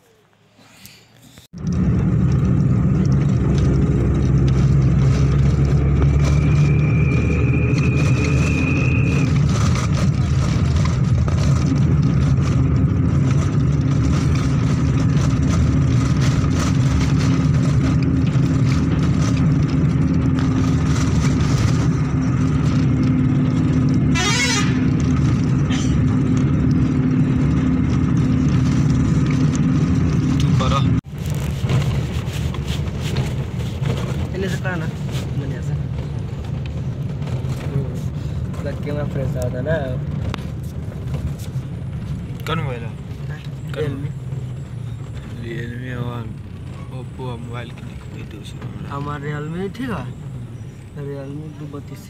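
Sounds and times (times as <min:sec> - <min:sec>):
vehicle engine and road drone: 0:00.0 - 0:52.0
vehicle horn: 0:24.0 - 0:25.0.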